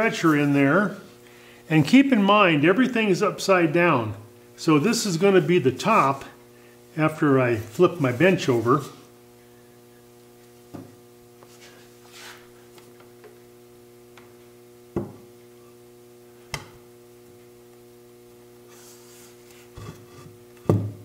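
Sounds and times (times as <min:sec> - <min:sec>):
electrical mains hum: 0:00.0 - 0:21.0
wood-on-wood knocks: 0:15.0 - 0:15.2.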